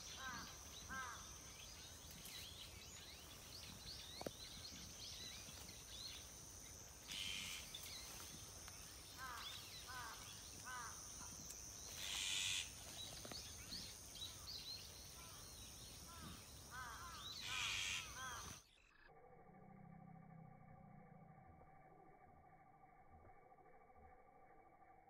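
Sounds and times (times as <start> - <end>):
small birds chirping: 0.0 - 19.1.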